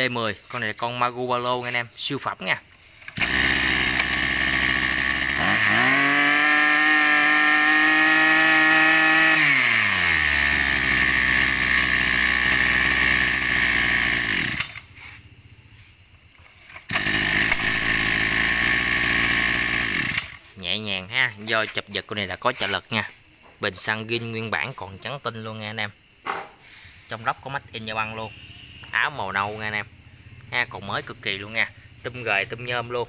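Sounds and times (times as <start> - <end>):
brush cutter engine idling and revving: 2.8 - 20.7, 27.4 - 33.0.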